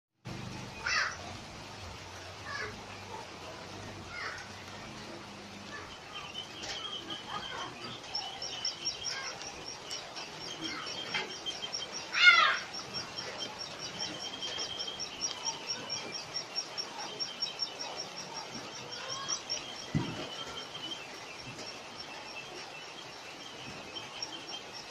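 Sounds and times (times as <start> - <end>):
birds chirping: 0.3 - 24.9
bird warbling call: 5.6 - 24.8.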